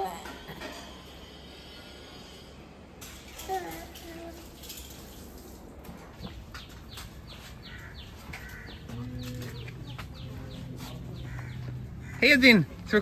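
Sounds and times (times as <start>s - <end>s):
small birds chirping: 6.1s - 13.0s.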